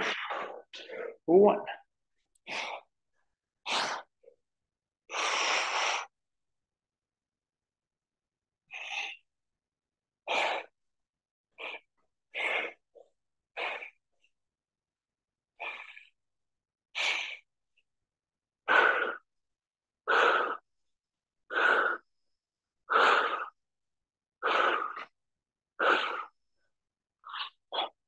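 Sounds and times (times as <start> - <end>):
man breathing hard: 0.0 - 1.2, 2.4 - 3.0, 5.1 - 6.1, 10.2 - 10.8, 20.0 - 20.7, 22.9 - 23.6, 24.4 - 25.2, 25.8 - 26.4.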